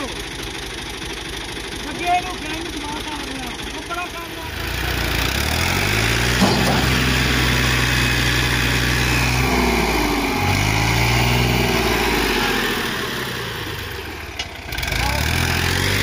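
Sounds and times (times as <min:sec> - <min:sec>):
tractor engine running under load: 0:00.0 - 0:16.0
short knock: 0:06.4 - 0:08.9.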